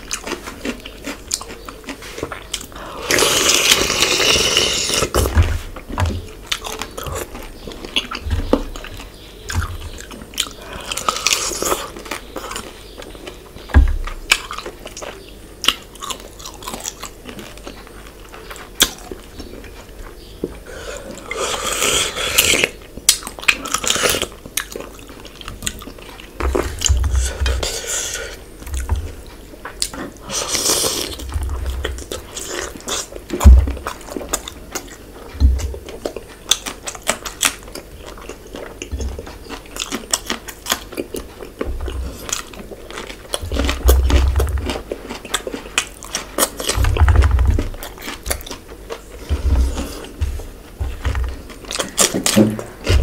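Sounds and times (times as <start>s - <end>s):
man chewing wetly: 0.0s - 53.0s
slurping: 3.0s - 5.3s.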